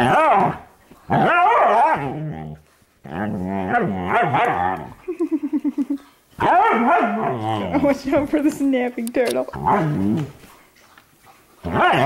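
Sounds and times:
dog growling: 0.0 - 5.2, 6.4 - 8.1, 9.4 - 10.4, 11.6 - 12.0.

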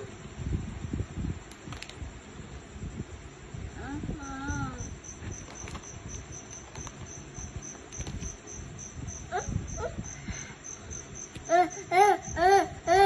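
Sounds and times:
insect trilling: 3.8 - 13.0.

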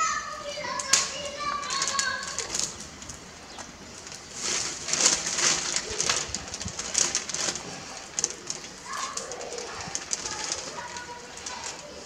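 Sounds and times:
dove cooing: 5.0 - 12.0.

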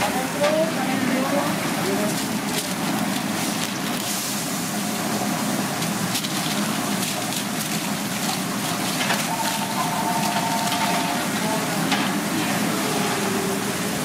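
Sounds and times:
kitchen sizzling hiss: 0.0 - 14.0
aluminium foil crinkling: 1.8 - 4.2, 5.8 - 11.2.

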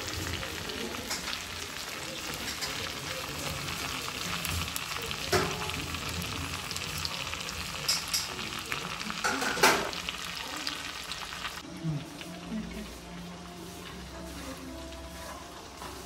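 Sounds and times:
food sizzling in oil: 0.0 - 16.0
spoon scraping a pan: 13.0 - 16.0.

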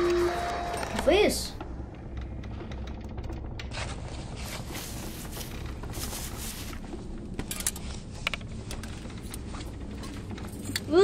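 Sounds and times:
low steady hum: 0.0 - 11.0
soft rustling: 3.7 - 7.2.

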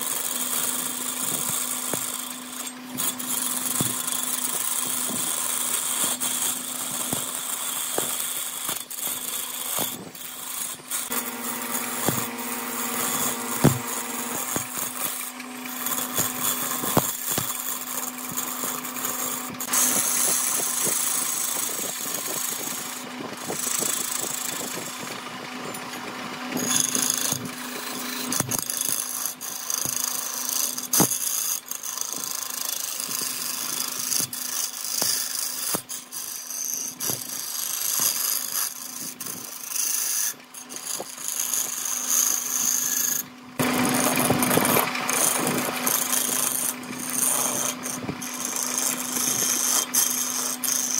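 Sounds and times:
lathe humming: 0.2 - 38.8, 39.5 - 50.9
sharp ticks and knocks: 7.0 - 22.4
turning tool scraping hiss: 26.6 - 50.9.

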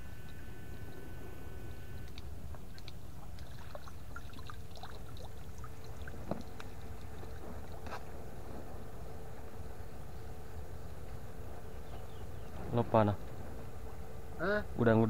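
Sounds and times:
faint steady tone: 0.0 - 15.0
small ticks: 1.8 - 3.5
water sloshing and dripping: 2.0 - 8.6.

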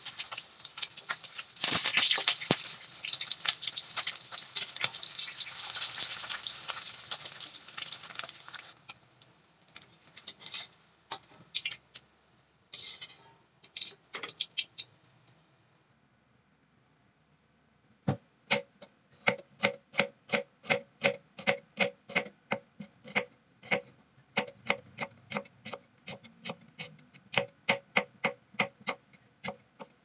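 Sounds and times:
hot oil crackling around frying egg: 0.0 - 12.0, 12.8 - 14.9.

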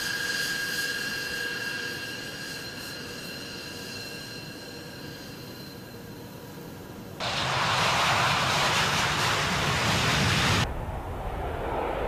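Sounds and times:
jet engines whining: 7.2 - 12.0.

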